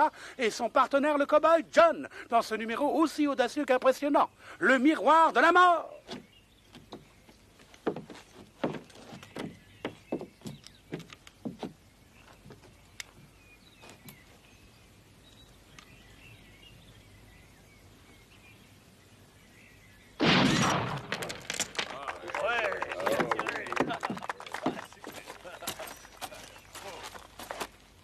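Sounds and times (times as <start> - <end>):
faint bird chirps: 5.9 - 20.2
knocks: 7.9 - 11.8.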